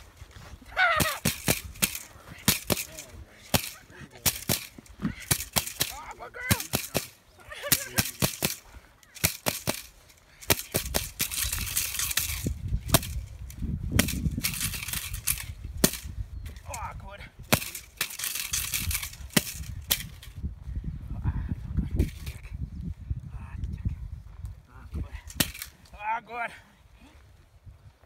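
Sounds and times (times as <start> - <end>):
rustle of paws in dry grass: 0.0 - 0.8
stick cracking on ground: 0.9 - 16.1.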